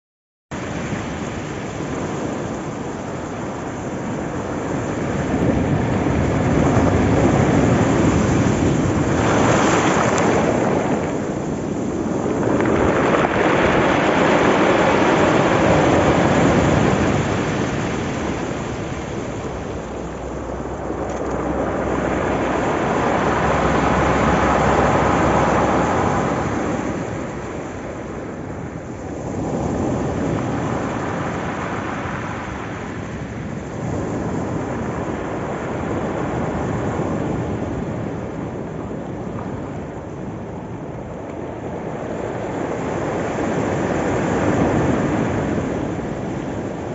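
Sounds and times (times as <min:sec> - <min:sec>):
sea waves breaking on pebble beach: 0:04.3 - 0:38.0.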